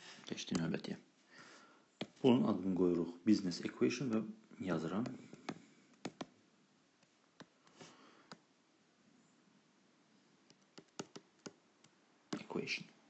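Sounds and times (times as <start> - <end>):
stylus tapping on pen tablet: 5.0 - 6.3, 10.4 - 12.6.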